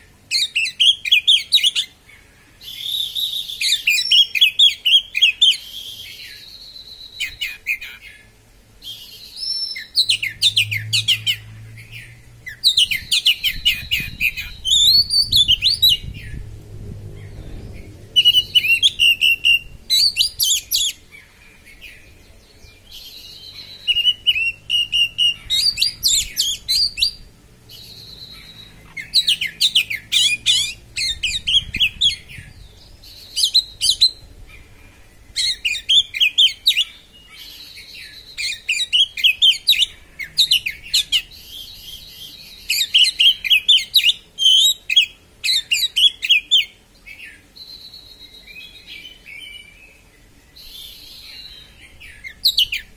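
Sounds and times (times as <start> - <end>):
bird whistled notes: 2.6 - 8.0, 8.9 - 16.2, 18.2 - 21.0, 23.2 - 32.2.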